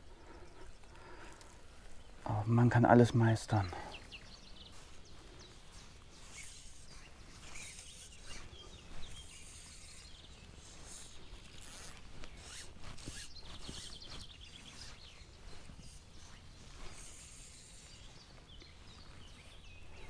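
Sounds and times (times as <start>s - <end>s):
zip-like rustling and swishing: 4.8s - 20.0s.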